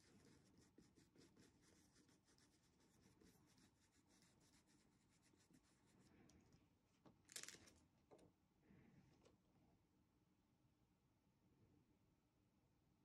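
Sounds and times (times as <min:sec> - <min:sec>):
faint brush strokes: 0:00.0 - 0:06.8.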